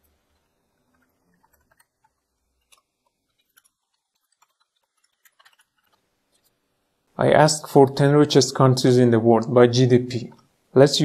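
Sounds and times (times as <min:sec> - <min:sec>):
computer keyboard clicks: 0:01.0 - 0:06.0.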